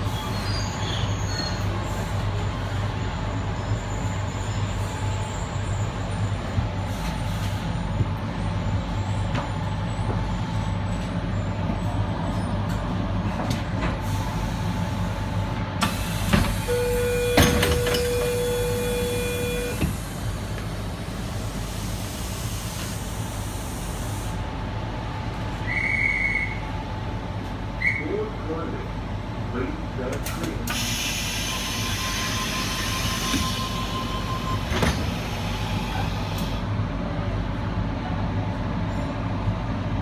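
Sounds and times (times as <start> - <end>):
train low hum: 0.0 - 40.0
air brake hiss: 30.7 - 33.8.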